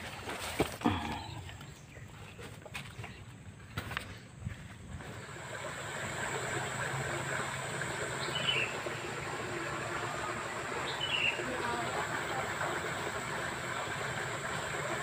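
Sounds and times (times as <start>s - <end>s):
bird chirping: 8.2s - 9.2s, 10.8s - 11.4s.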